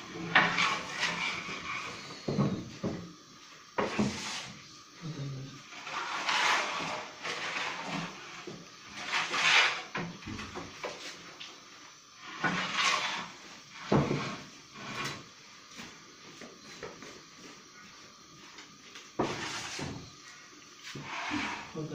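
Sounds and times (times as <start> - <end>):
wooden peel scraping stone floor: 0.1 - 2.3, 3.8 - 4.6, 5.7 - 11.0, 12.2 - 15.3, 19.2 - 20.0, 20.9 - 21.8.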